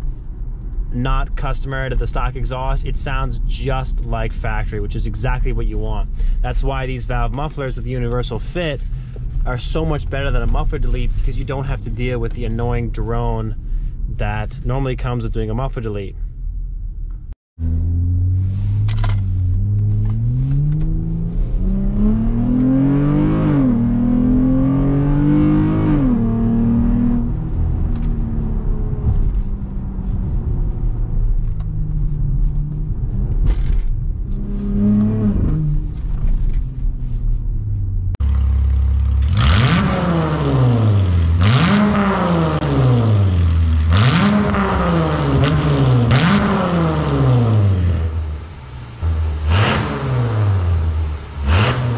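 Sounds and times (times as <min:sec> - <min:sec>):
car engine accelerating: 0:17.6 - 0:51.9
car exhaust revving: 0:17.6 - 0:51.9.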